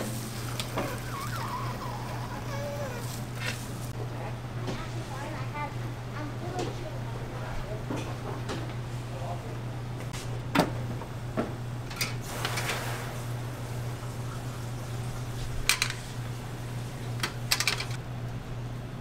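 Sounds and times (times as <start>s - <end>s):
metal utensils clinking: 17.2s - 18.0s.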